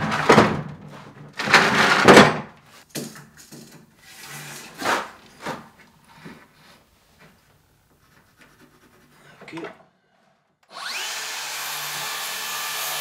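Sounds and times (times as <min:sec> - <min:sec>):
plywood knocks and thuds: 0:00.0 - 0:03.2.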